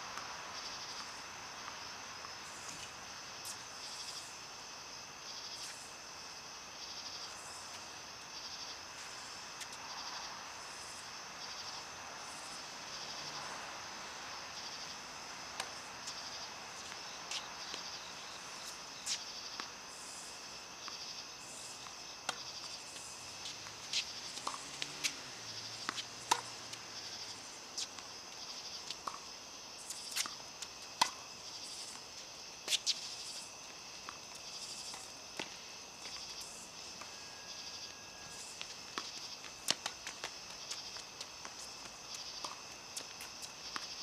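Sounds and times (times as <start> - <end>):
tennis balls struck and bouncing: 15.1 - 18.0, 21.8 - 29.4, 30.1 - 32.1, 38.6 - 44.0.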